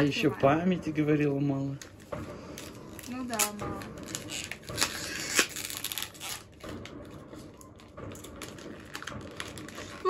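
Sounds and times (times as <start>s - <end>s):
paper and cardboard crinkling: 2.6s - 10.0s.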